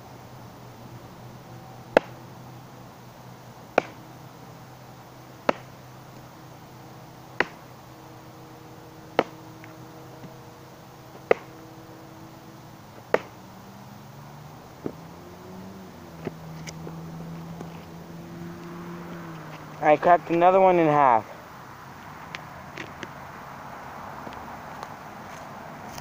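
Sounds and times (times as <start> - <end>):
wooden stick whacking: 1.9 - 2.2, 3.8 - 4.0, 5.4 - 5.7, 9.2 - 9.4, 11.2 - 11.6, 13.1 - 13.4.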